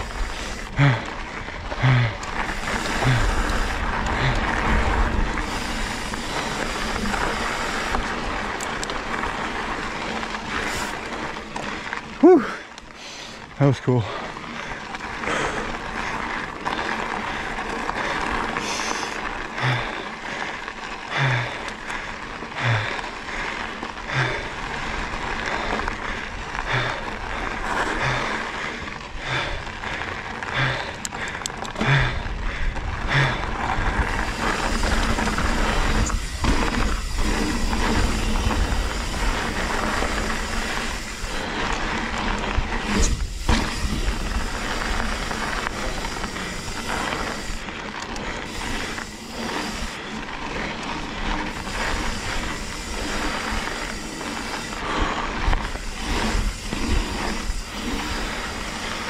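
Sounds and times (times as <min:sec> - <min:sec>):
wind rumble on microphone: 0:00.0 - 0:08.6, 0:29.1 - 0:47.7
bike rattling over bumps: 0:00.0 - 0:59.0
bike tyres on dirt trail: 0:00.0 - 0:59.0.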